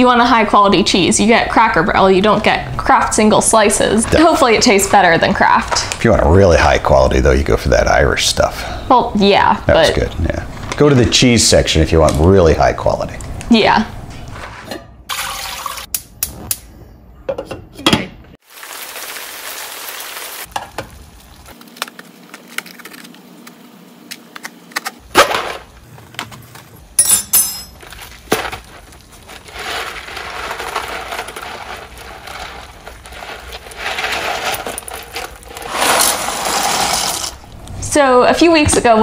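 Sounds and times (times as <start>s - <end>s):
water boiling in a pot: 18.4s - 22.4s, 28.0s - 37.5s.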